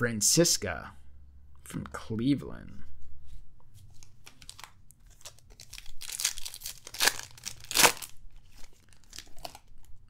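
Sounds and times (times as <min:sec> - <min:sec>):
foil wrapper tearing and crinkling: 0:04.2 - 0:09.8.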